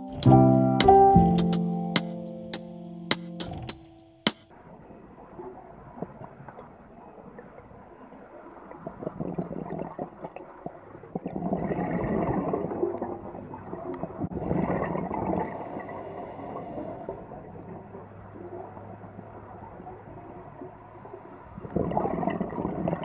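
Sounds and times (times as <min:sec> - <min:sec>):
gurgling exhaled bubbles: 0:08.7 - 0:16.0, 0:21.6 - 0:23.0
regulator inhale hiss: 0:15.5 - 0:17.2.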